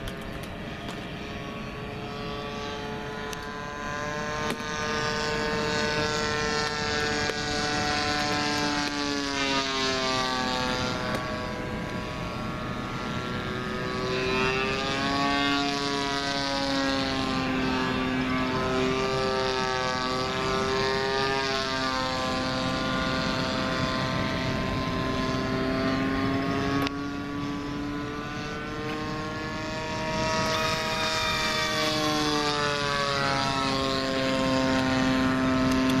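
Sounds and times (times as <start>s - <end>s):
model airplane engine droning: 0.0s - 36.0s.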